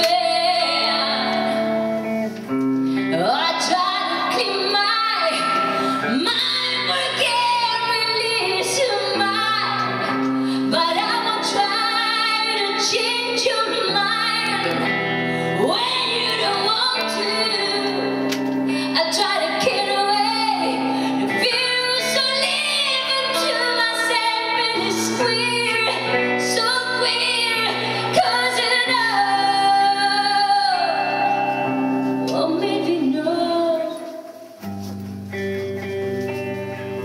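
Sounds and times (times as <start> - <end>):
woman singing into microphone: 0.0 - 2.3, 2.9 - 34.5
instrumental accompaniment: 0.0 - 37.0.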